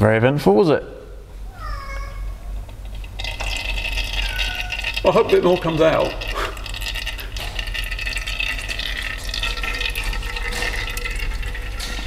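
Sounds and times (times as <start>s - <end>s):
oil dripping into plastic jug: 2.7s - 12.0s.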